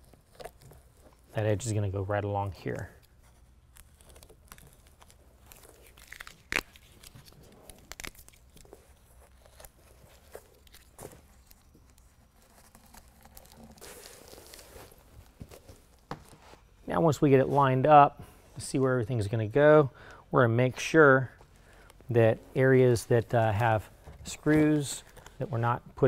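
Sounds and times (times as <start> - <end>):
hook-and-loop strips crinkling: 0.0 - 16.0.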